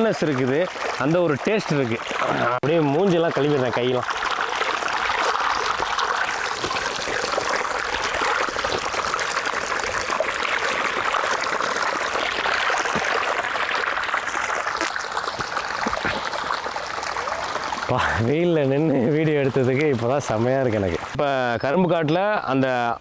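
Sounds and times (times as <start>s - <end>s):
hands splashing water: 0.0s - 18.0s
water gushing from pipe: 0.0s - 21.7s.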